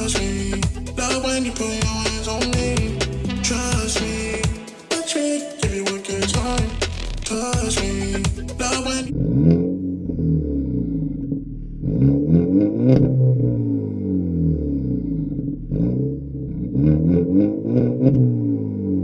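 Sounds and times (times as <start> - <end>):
car engine revving: 0.0 - 4.6, 6.1 - 19.0.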